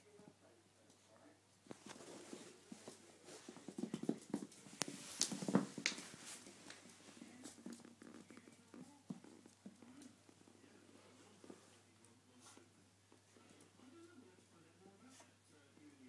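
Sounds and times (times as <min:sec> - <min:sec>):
puppy scuffling on wood floor: 0:01.7 - 0:10.2.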